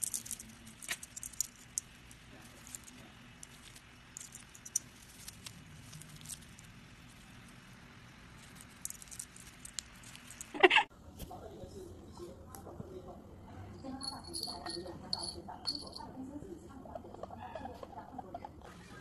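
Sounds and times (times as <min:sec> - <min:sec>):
claws clicking on fabric: 0:00.0 - 0:07.4, 0:08.4 - 0:10.6.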